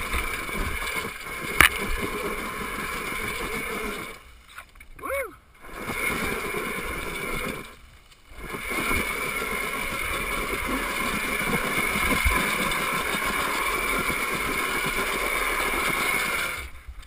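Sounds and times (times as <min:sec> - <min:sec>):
bike bumping over rocks: 0:00.1 - 0:02.4.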